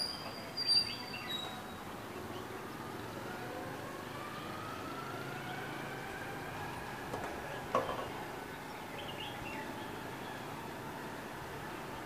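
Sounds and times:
high bird chirps: 0:00.0 - 0:01.8
city background hum: 0:00.0 - 0:12.0
faint engine tone rising: 0:00.8 - 0:12.0.

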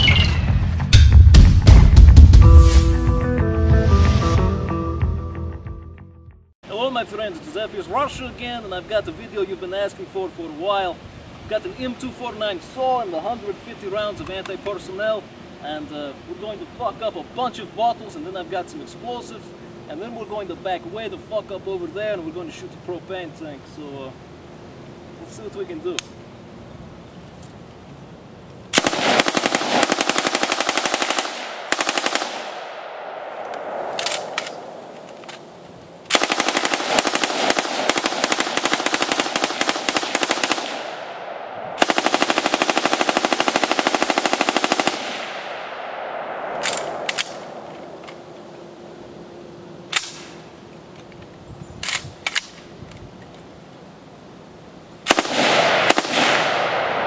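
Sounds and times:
machine gun firing bursts: 0:28.8 - 0:32.6, 0:36.1 - 0:41.0, 0:41.8 - 0:45.4, 0:55.1 - 0:56.6.

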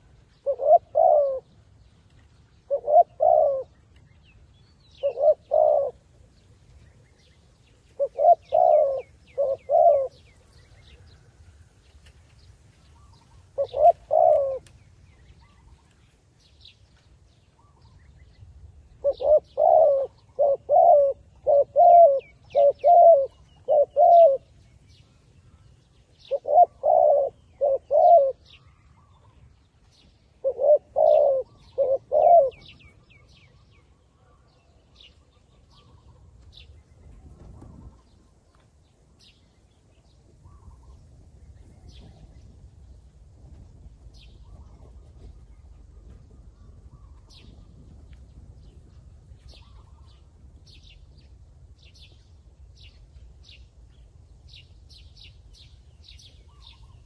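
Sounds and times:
dove cooing: 0:00.0 - 0:01.8, 0:02.6 - 0:03.9, 0:04.9 - 0:11.4, 0:13.0 - 0:14.8, 0:18.9 - 0:24.6, 0:26.2 - 0:29.5, 0:30.3 - 0:36.6
small birds chirping: 0:00.0 - 0:57.0.

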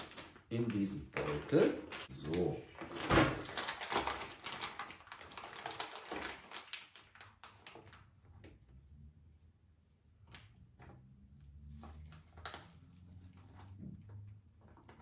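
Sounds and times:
plastic bag crinkling: 0:00.0 - 0:08.4, 0:11.7 - 0:13.9.

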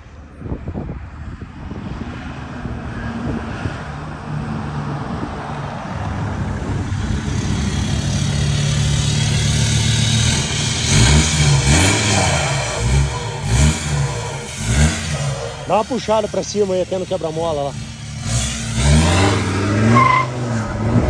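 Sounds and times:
diesel engine droning: 0:02.4 - 0:21.0
engine revving blips: 0:07.9 - 0:21.0.

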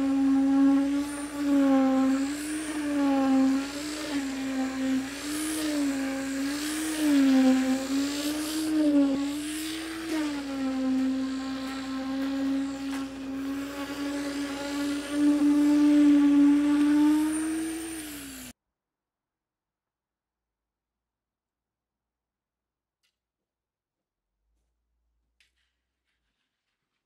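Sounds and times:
concrete pump truck drone: 0:00.0 - 0:18.5.

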